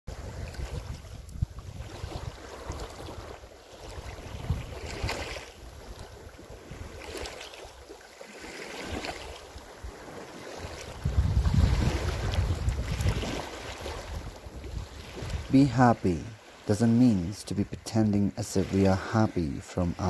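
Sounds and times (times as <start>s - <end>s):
wind buffeting microphone: 0.1s - 7.2s, 8.9s - 16.1s.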